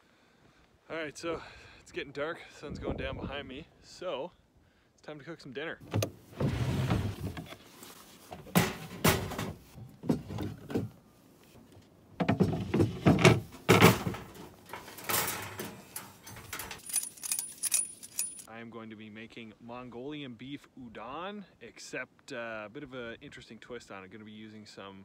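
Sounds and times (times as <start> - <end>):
truck-bed drawer handled: 5.8 - 7.6, 12.2 - 18.4
plywood board sliding: 5.9 - 8.6
camp stove set down: 8.3 - 11.0, 12.2 - 17.4.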